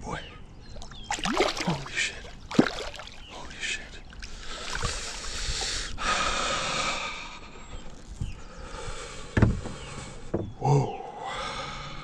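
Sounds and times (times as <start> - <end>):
water splashing: 0.8 - 5.6
man breathing hard and gasping: 4.3 - 7.7, 8.5 - 12.0.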